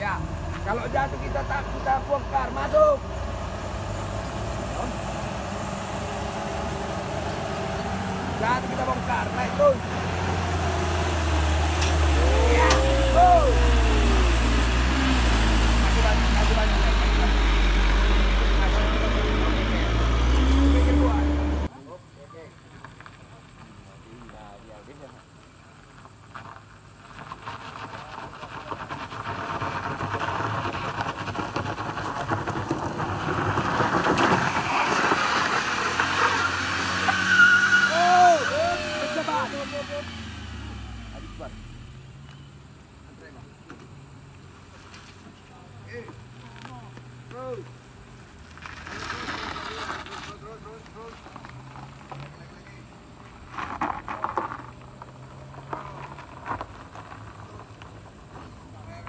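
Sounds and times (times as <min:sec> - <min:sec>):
car engine revving hard: 0:00.3 - 0:21.7, 0:32.7 - 0:42.0
short rising and falling squeals: 0:02.6 - 0:21.7, 0:34.1 - 0:42.3
tyres spinning on gravel: 0:22.6 - 0:42.0, 0:46.0 - 0:59.0.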